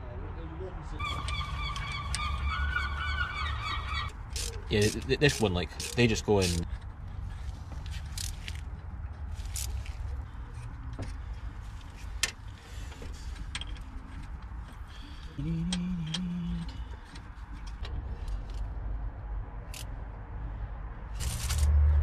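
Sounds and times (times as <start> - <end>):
metallic clicks of studs handled: 4.1 - 11.2, 11.8 - 18.7.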